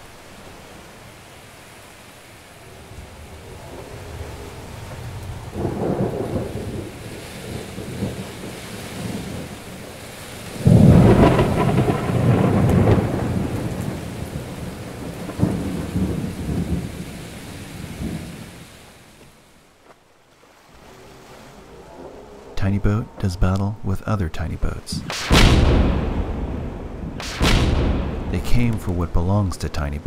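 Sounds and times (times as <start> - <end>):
steady rain: 0.0 - 30.0
thunder rumbling: 2.7 - 18.7, 24.8 - 29.2.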